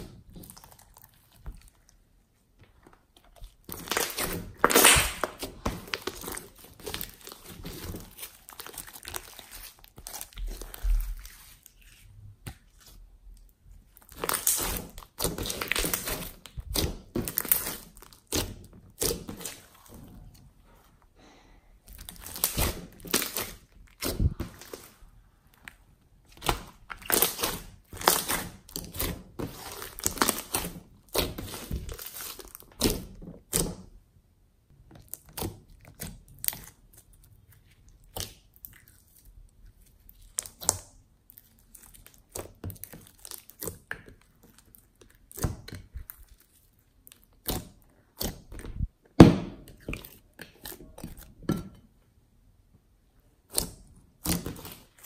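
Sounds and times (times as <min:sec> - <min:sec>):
slime squeezed by hand: 0:03.7 - 0:13.0
loud slime pop: 0:04.0 - 0:05.5.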